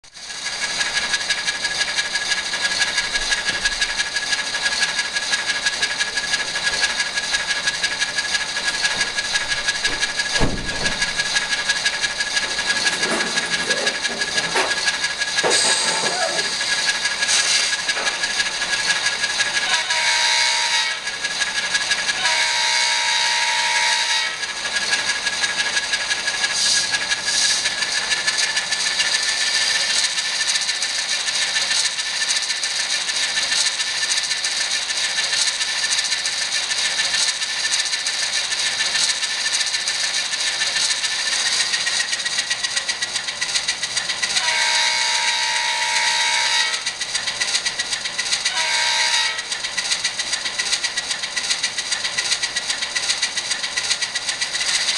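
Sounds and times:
tinny diesel engine sound: 0.1 - 54.9
multi-note train horn: 19.6 - 21.2, 22.1 - 24.5, 44.4 - 46.9, 48.4 - 49.6.

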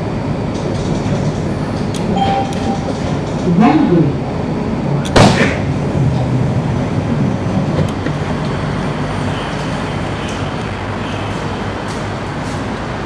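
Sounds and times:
low hum of train car: 0.0 - 13.0
sharp loud noise of doors opening: 0.6 - 3.9.

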